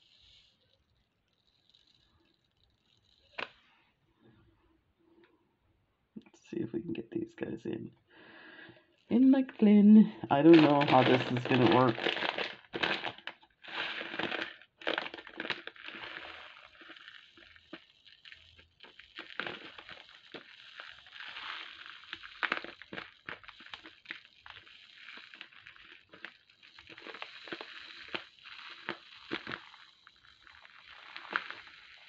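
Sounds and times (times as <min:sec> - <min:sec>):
glass beads pouring into a jar: 0:00.0 - 0:00.7, 0:01.3 - 0:03.4, 0:10.3 - 0:32.0
plastic bag rustling: 0:10.3 - 0:32.0.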